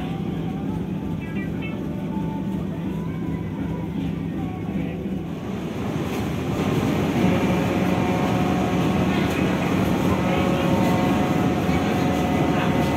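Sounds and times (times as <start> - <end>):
ferry engines droning: 0.0 - 12.9
rushing noise: 5.2 - 12.9.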